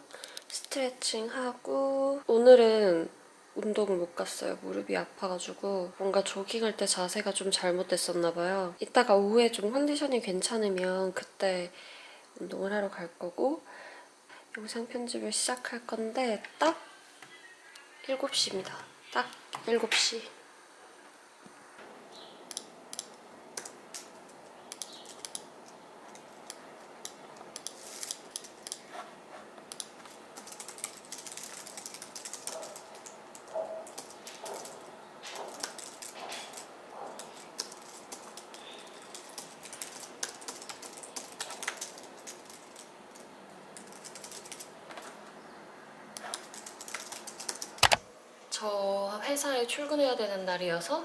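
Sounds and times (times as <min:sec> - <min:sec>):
keyboard key clicks: 0:46.9 - 0:48.0.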